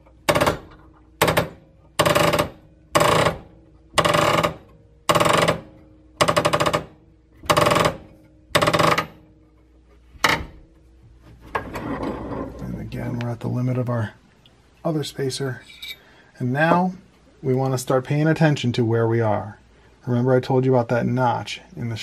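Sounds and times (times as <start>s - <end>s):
bearing creaking under pressure: 0.0s - 9.4s, 10.0s - 10.8s.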